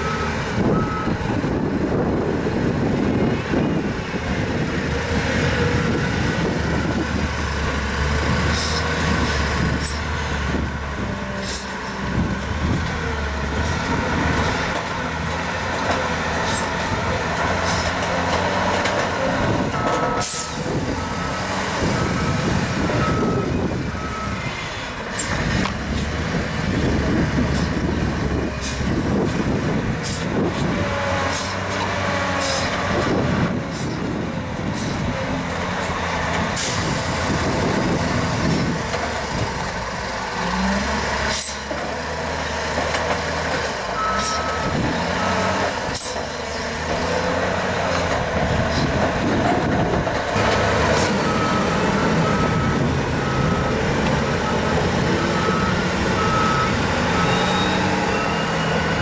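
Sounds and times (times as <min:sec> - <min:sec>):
reversing alarm beeping: 0:00.0 - 0:01.2, 0:19.8 - 0:24.5, 0:44.0 - 0:46.2, 0:51.2 - 0:59.0
wheel loader diesel engine: 0:00.0 - 0:59.0.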